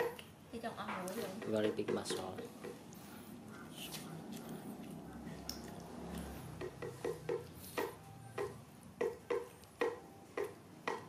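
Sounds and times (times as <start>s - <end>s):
monkey chewing: 1.2s - 7.9s
wet mouth clicks: 4.8s - 6.9s.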